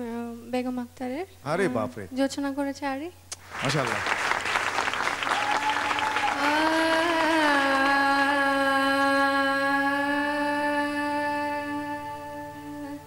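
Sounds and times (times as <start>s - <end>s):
applause: 3.4s - 8.6s
woman singing: 6.3s - 13.0s.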